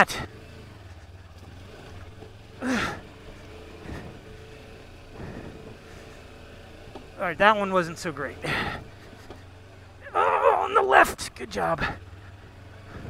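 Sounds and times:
motorcycle engine at low revs: 0:00.0 - 0:13.0
short vocal exclamation: 0:10.0 - 0:12.0.

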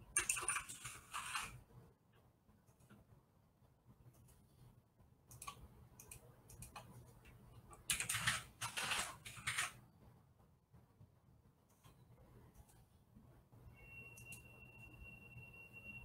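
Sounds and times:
typing on computer keyboard: 0:00.1 - 0:01.5, 0:05.3 - 0:07.0, 0:07.7 - 0:09.8.

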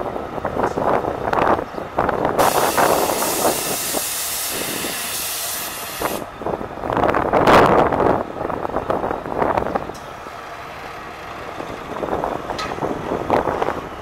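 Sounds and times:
loud rushing air: 0:00.8 - 0:09.5
air suspension hissing: 0:02.4 - 0:06.3.

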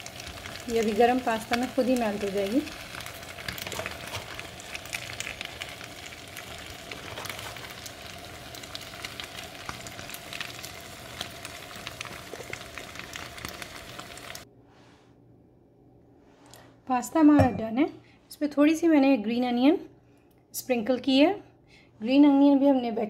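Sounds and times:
pasta sizzling in a skillet: 0:00.0 - 0:14.4.

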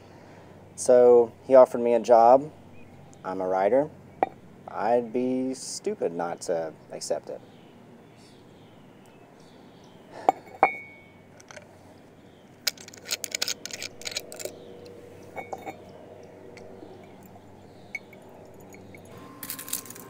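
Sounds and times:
ceramic mug clinking on surface: 0:10.2 - 0:11.1, 0:15.3 - 0:15.9
small case clicking and rattling: 0:11.3 - 0:11.7, 0:12.6 - 0:15.8.

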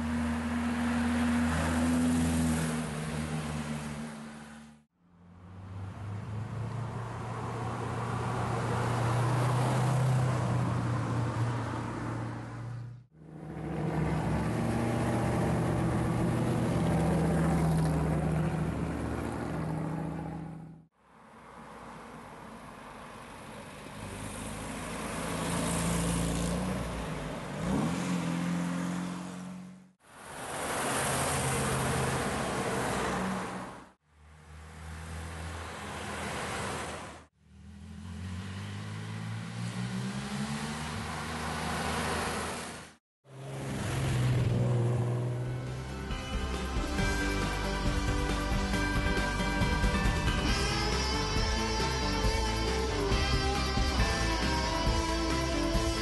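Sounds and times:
sports cars passing: 0:00.0 - 0:20.8, 0:34.5 - 0:46.1.

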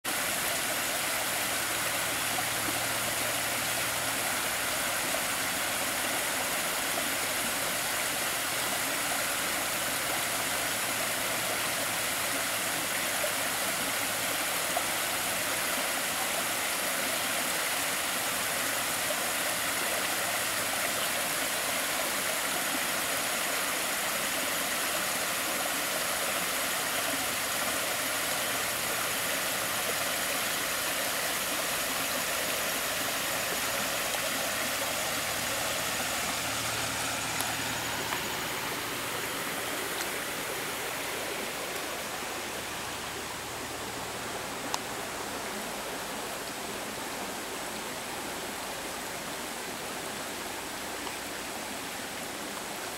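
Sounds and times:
creek water splashing over rocks: 0:00.0 - 0:52.9.

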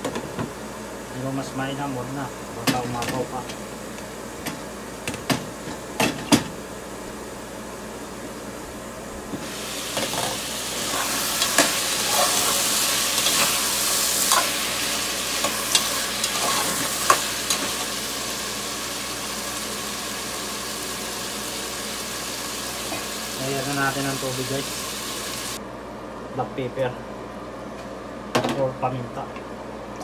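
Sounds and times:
food sizzling in hot oil: 0:09.3 - 0:25.6.

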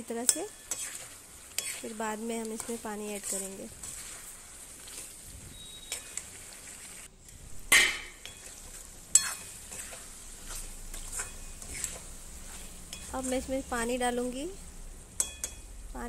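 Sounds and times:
gravy sizzling: 0:00.0 - 0:16.0
metal spatula scraping pan: 0:00.3 - 0:02.0, 0:02.6 - 0:07.1, 0:07.7 - 0:13.7
spatula clinking against pan: 0:09.1 - 0:09.5, 0:15.2 - 0:15.6.

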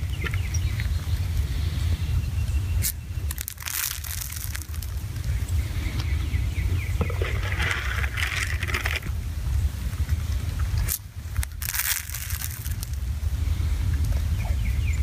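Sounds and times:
wind buffeting microphone: 0:00.0 - 0:15.0
corn kernels landing: 0:02.8 - 0:05.0, 0:10.9 - 0:13.0
crinkly rustling: 0:03.3 - 0:05.4, 0:07.0 - 0:09.1, 0:10.8 - 0:13.0.

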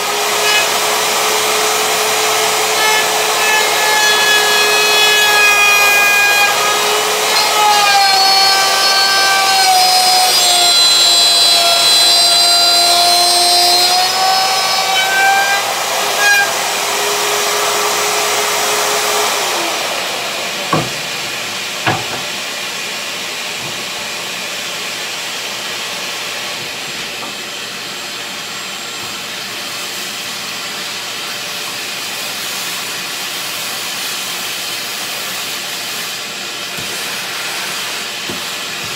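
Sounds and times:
router motor whine: 0:00.0 - 0:22.4
shop vacuum hiss: 0:17.0 - 0:38.9
sharp knocks: 0:20.7 - 0:22.4.

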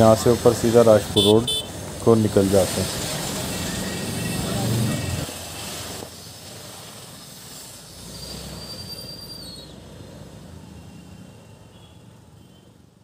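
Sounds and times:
road traffic noise: 0:00.0 - 0:13.0
vehicle brakes squealing: 0:08.0 - 0:10.0, 0:10.6 - 0:12.9.

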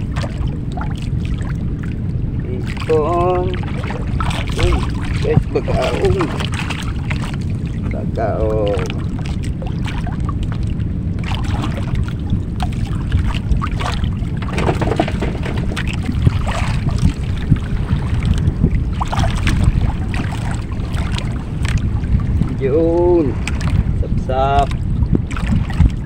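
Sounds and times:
light knocks and splashes: 0:00.0 - 0:01.9, 0:02.6 - 0:07.9, 0:08.7 - 0:22.6, 0:23.3 - 0:23.9, 0:24.6 - 0:26.0
water lapping against hull: 0:00.0 - 0:26.0
wind buffeting microphone: 0:00.0 - 0:26.0.

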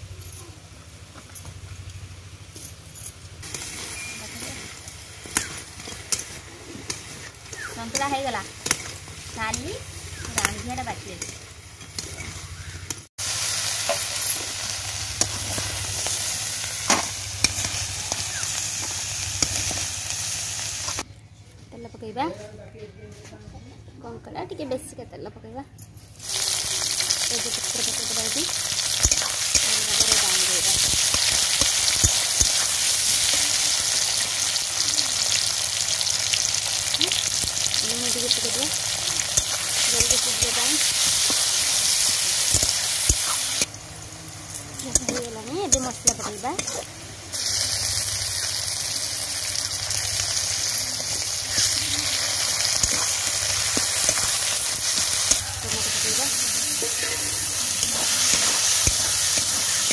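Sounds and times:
crab frying in oil: 0:03.2 - 0:21.1, 0:26.2 - 0:59.9
metal spatula scraping and tapping: 0:29.0 - 0:30.2, 0:44.8 - 0:46.9, 0:52.7 - 0:55.9.

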